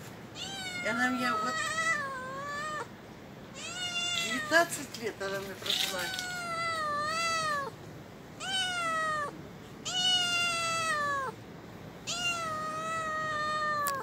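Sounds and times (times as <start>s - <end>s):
young cat meowing: 0.4s - 2.9s, 3.5s - 4.7s, 5.6s - 7.8s, 8.4s - 11.4s, 12.0s - 14.0s.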